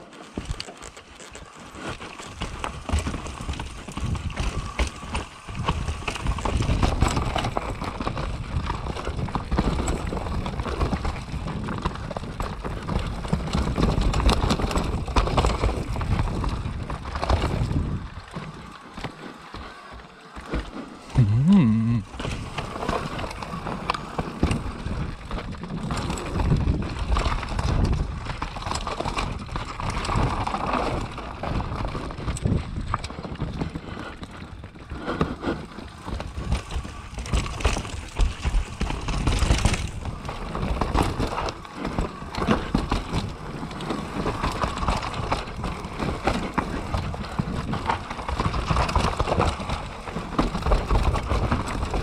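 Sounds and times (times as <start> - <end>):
tyres over dirt and rocks: 0.0 - 52.0
wind rumble on microphone: 2.4 - 18.8, 22.0 - 52.0.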